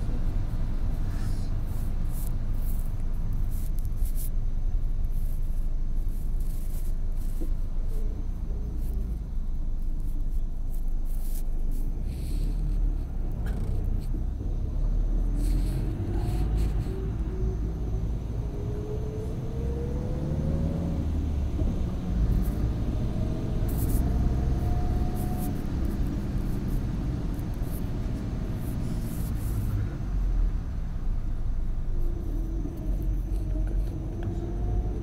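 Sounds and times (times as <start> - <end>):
car engine and tyres rumbling: 0.0 - 35.0
faint rising whine: 4.3 - 35.0.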